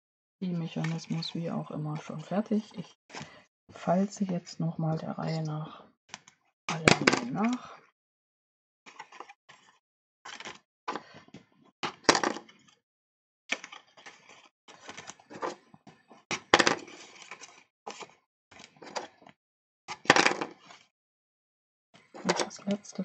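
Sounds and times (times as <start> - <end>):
paper scraping and rustling: 8.9 - 10.6, 13.5 - 15.6, 16.4 - 19.2.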